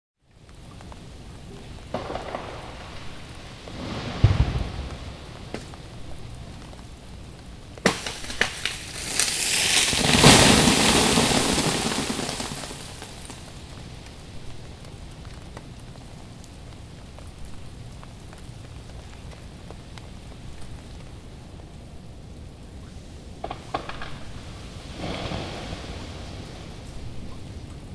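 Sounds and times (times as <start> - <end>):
tree branch snapping: 7.8 - 11.0
ice shattering through branches: 7.8 - 13.6.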